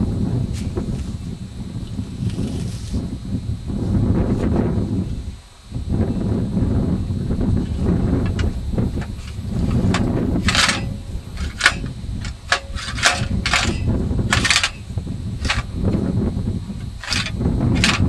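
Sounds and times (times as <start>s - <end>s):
steady low rumble: 0.0s - 18.0s
metal clinks and scrapes: 9.2s - 14.8s, 15.4s - 15.7s, 17.0s - 18.0s.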